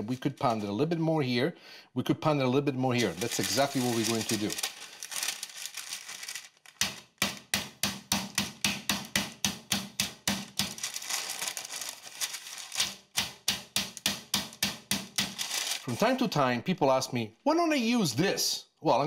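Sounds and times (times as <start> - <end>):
meat mallet pounding meat: 6.8 - 10.8, 13.1 - 15.4.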